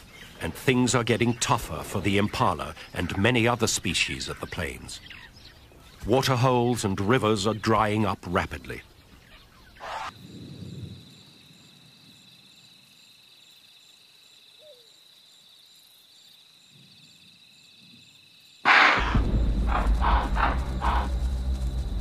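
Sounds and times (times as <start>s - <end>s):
natural outdoor ambience: 0.0s - 22.0s
loud boom: 18.7s - 22.0s
dramatic music: 18.9s - 22.0s.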